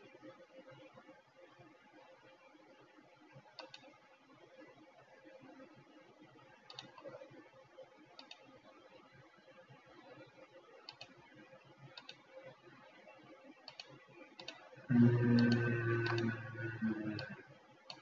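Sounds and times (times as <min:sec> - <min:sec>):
computer mouse clicks: 0:03.6 - 0:03.9, 0:06.7 - 0:07.2, 0:08.2 - 0:08.6, 0:10.8 - 0:11.2, 0:11.9 - 0:12.2, 0:13.6 - 0:18.0
steady hum with held pitches: 0:11.2 - 0:18.0.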